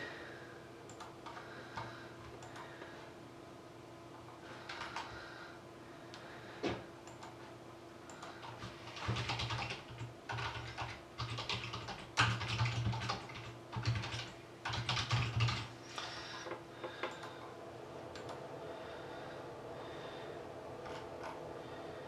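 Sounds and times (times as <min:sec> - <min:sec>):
typing on a computer keyboard: 0:00.9 - 0:02.7, 0:04.2 - 0:05.1, 0:07.1 - 0:07.4, 0:08.1 - 0:15.7, 0:20.8 - 0:21.4.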